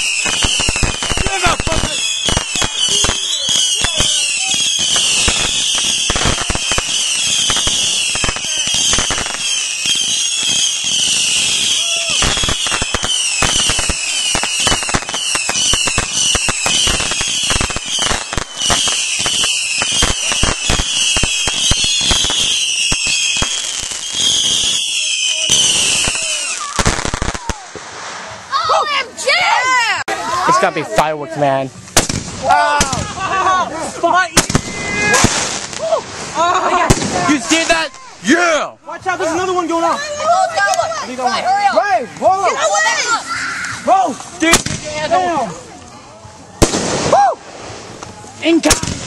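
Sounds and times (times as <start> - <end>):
falling firework whistles: 0.0 - 28.4
firework crackling and popping: 0.0 - 28.8, 31.8 - 49.0.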